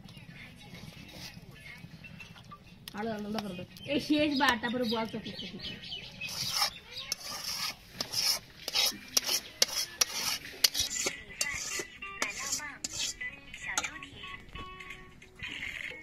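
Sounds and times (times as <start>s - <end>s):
spatula scraping a metal bowl: 0.8s - 1.4s, 6.2s - 14.0s.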